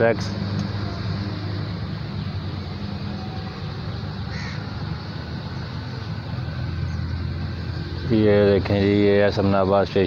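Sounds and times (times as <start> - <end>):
bird call: 4.3 - 4.7.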